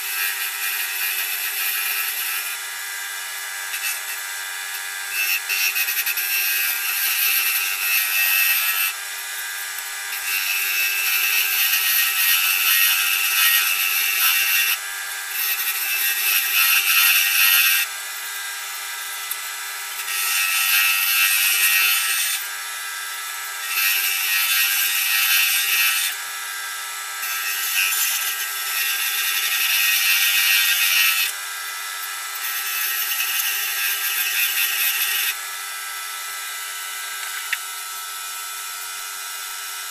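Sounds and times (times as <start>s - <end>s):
wood lathe humming: 0.0s - 26.2s.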